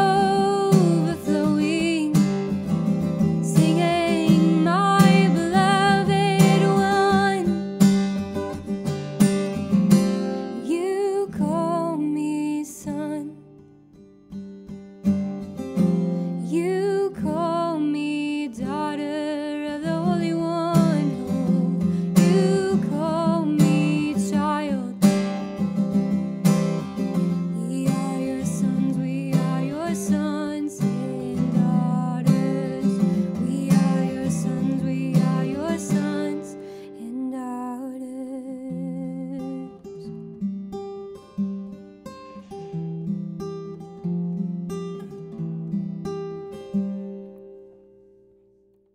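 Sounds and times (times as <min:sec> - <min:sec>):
woman singing: 0:00.0 - 0:07.7, 0:10.5 - 0:13.5, 0:16.3 - 0:25.3, 0:27.3 - 0:40.2
strummed acoustic guitar: 0:00.0 - 0:37.7, 0:38.5 - 0:48.7.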